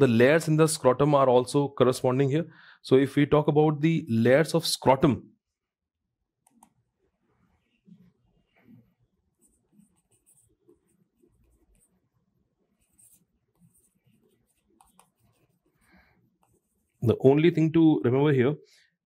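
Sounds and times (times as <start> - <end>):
pen scratching on paper: 7.5 - 17.1.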